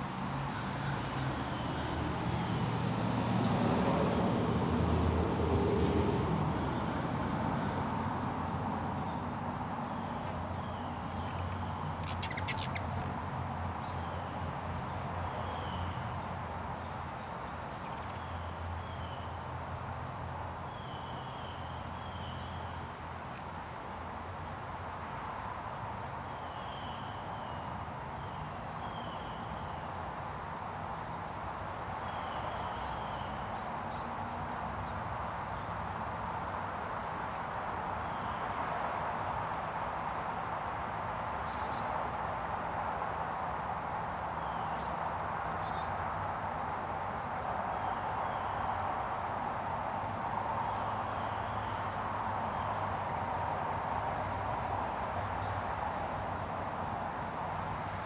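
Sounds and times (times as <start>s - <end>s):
distant traffic rumble: 0.0s - 15.1s
small birds chirping: 8.5s - 13.1s.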